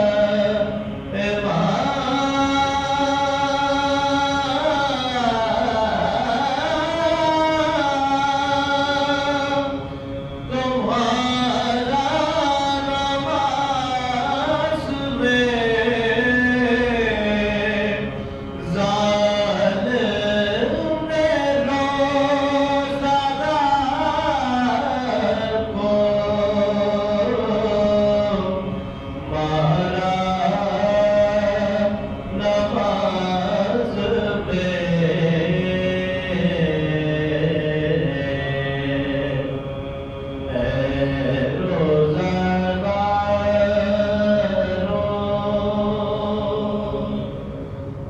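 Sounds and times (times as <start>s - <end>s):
men chanting unaccompanied: 40.5s - 47.4s.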